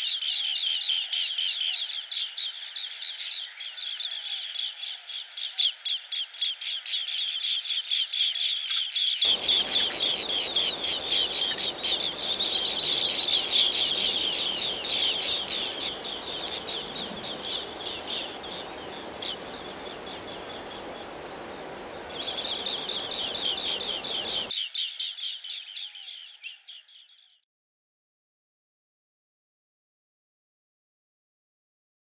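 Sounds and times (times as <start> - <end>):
high insect buzz: 9.2 - 24.5
birds chirping rapidly: 9.2 - 24.8.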